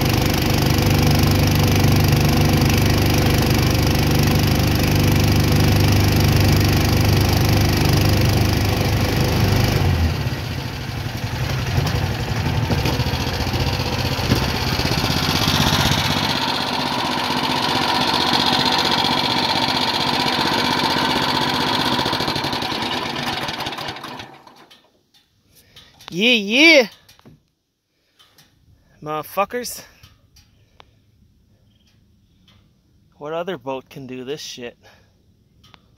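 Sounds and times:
boat motor running: 0.0 - 24.5.

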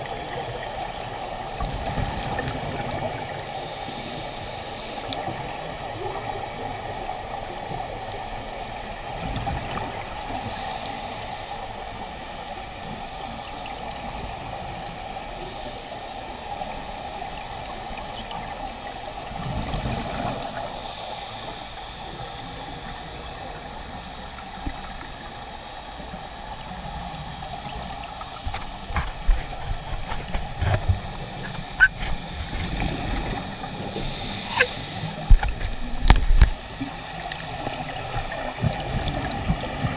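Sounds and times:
diver's regulator bubbles rumbling: 0.0 - 3.4, 26.2 - 39.9
underwater hiss and hum: 0.0 - 39.9.

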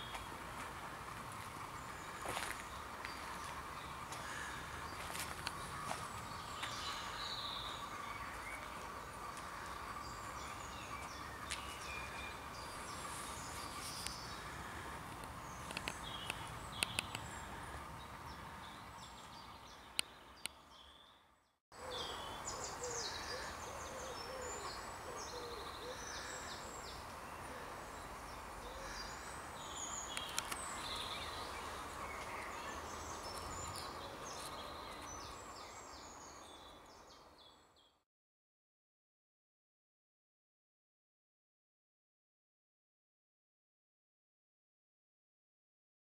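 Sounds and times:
birds trilling: 21.8 - 37.0.

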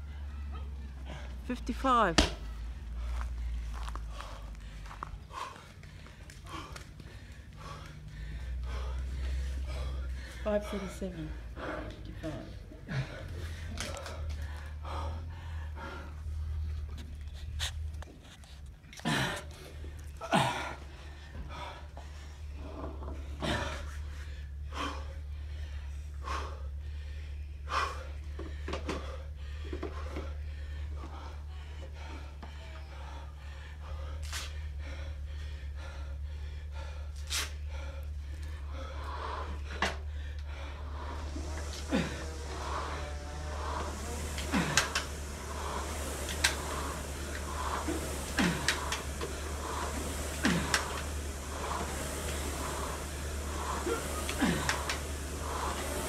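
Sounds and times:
man panting: 0.0 - 1.5, 2.6 - 18.0, 18.9 - 56.0
low steady hum: 0.0 - 56.0
man gasping breaths: 2.9 - 16.9, 23.2 - 56.0
rowing machine strokes: 27.6 - 56.0.

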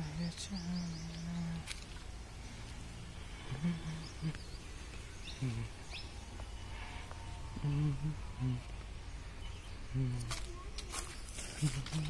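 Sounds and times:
person humming: 0.0 - 1.7, 3.4 - 4.7, 5.3 - 5.9, 7.4 - 8.8, 9.8 - 10.4, 11.6 - 12.0
small birds chirping: 0.0 - 12.0.

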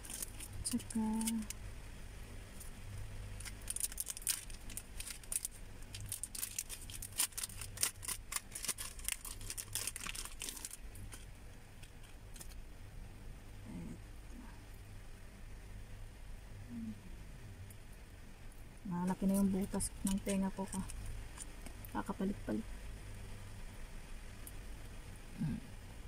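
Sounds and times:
plastic packet crinkling: 0.0 - 1.6, 3.4 - 12.6, 19.2 - 21.7.

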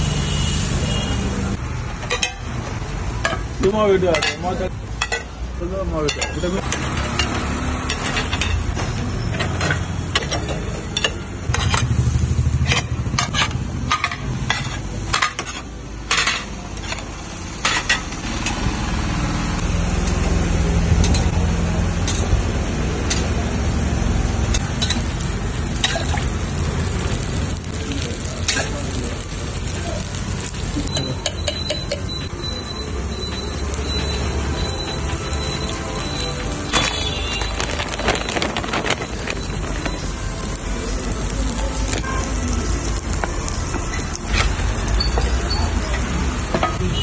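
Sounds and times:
metal lids and spatula clinking: 2.0 - 2.5, 3.2 - 5.4, 6.0 - 11.9, 12.6 - 18.5, 25.8 - 26.3, 30.9 - 32.2
batter sizzling in pans: 22.0 - 46.6.

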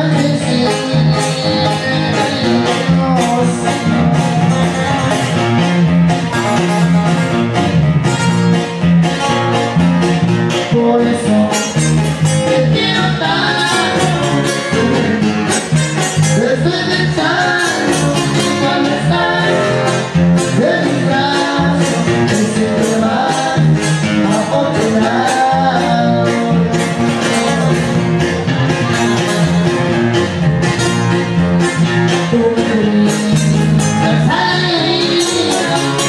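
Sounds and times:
person singing: 0.0 - 5.4, 10.5 - 28.0, 31.7 - 36.0
guitar: 0.0 - 36.0.

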